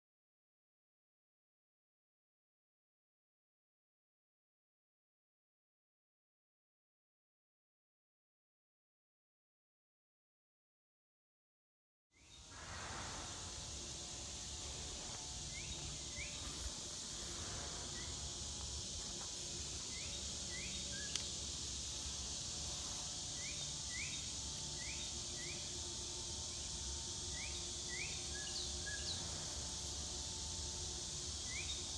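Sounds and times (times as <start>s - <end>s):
insects buzzing: 12.2s - 31.9s
bird chirping: 15.4s - 16.8s, 19.8s - 21.9s, 23.2s - 25.8s, 26.5s - 29.4s, 31.4s - 31.9s.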